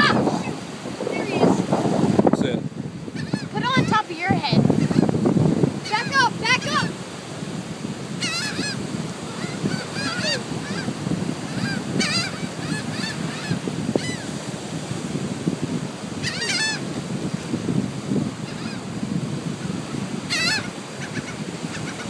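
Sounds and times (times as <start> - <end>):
gulls calling: 0.0 - 1.7, 3.1 - 7.1, 8.0 - 14.6, 16.0 - 17.0, 18.4 - 19.0, 19.7 - 22.0
surf: 0.0 - 22.0
wind: 0.0 - 22.0.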